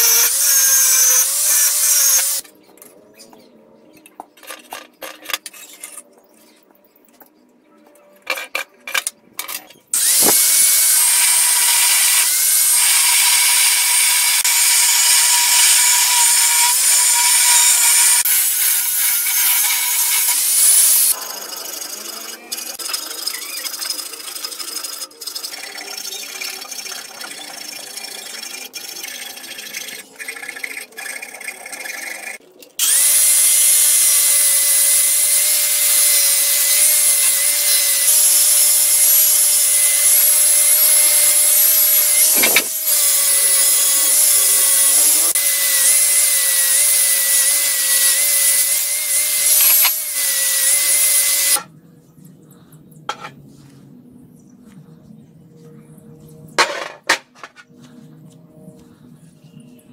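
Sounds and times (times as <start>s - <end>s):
angle grinder sanding steel: 0.0s - 2.4s, 10.0s - 51.6s.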